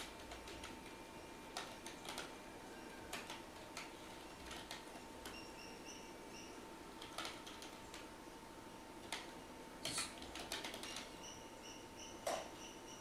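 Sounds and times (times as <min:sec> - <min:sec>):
keyboard keys clicking: 0:00.0 - 0:02.4, 0:03.1 - 0:05.4, 0:07.0 - 0:08.1, 0:09.0 - 0:11.1
faint electrical hum: 0:00.0 - 0:13.0.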